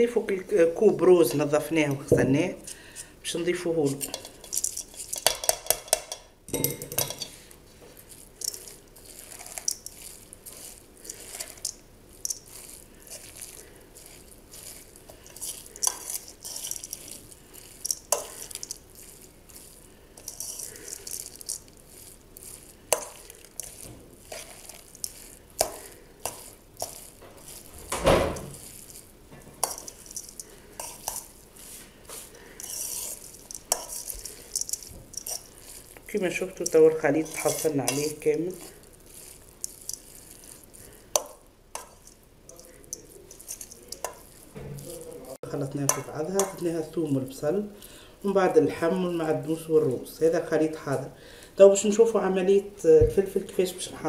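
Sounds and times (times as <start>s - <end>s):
wet rustle of kneading: 0.0s - 5.3s, 7.3s - 54.0s
rice poured into metal bowl: 7.0s - 46.8s.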